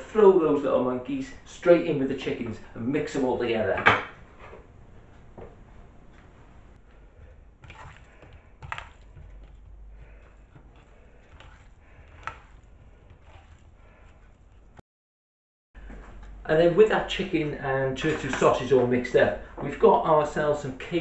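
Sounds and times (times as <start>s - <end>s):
hands mixing meat in a bowl: 6.8s - 14.8s.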